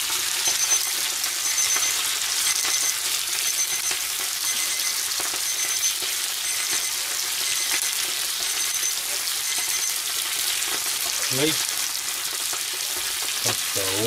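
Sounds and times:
food sizzling in pans: 0.0s - 14.0s
high electronic beep: 0.4s - 10.0s.

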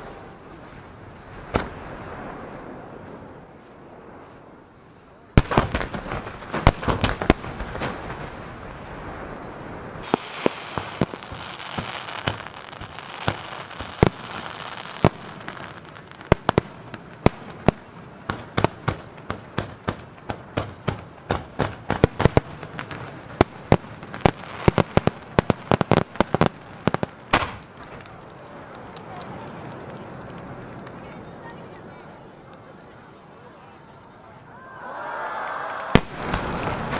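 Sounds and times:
steady hiss: 0.0s - 28.2s
fireworks bursting with bangs: 0.0s - 34.0s, 35.8s - 36.9s.

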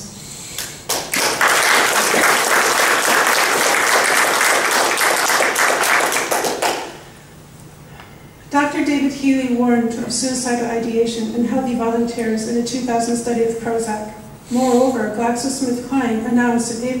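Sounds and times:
audience applauding: 0.6s - 7.0s.

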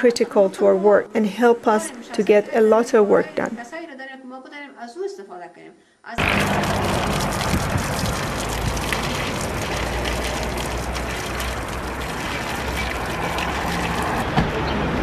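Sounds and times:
water splashing into stone basin: 6.2s - 14.6s.

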